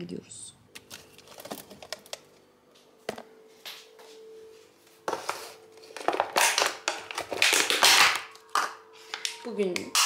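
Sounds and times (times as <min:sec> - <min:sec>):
faint steady hum: 0:00.0 - 0:07.4
plastic crackling and rustling: 0:00.7 - 0:02.3, 0:05.2 - 0:10.0.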